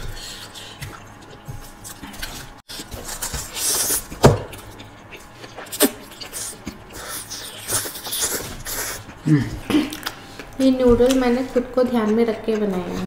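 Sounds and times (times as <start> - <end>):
chewing: 0.0 - 11.3
wet mouth clicks: 3.6 - 9.2.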